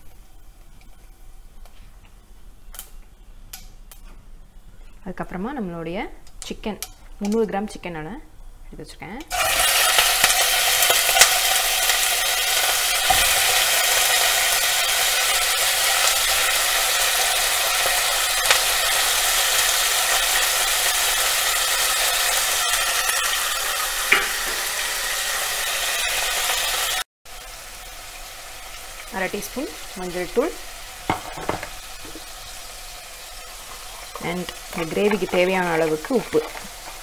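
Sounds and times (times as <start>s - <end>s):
chicken sizzling in hot oil: 9.3s - 37.0s.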